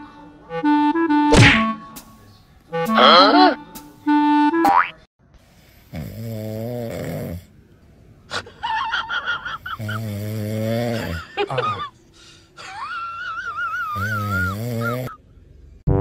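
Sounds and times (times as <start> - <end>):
cat snoring: 5.6 - 7.6, 9.8 - 11.2, 14.0 - 15.2.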